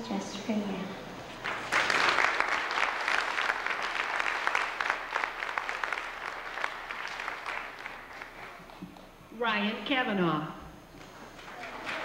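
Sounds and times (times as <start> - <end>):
audience applauding: 1.3 - 9.1, 11.0 - 12.0.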